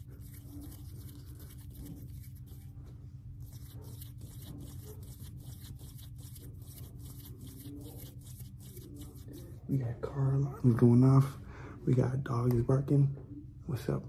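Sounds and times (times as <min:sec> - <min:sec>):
hands rubbing close to microphone: 0:00.0 - 0:09.7
low steady hum: 0:00.0 - 0:14.0.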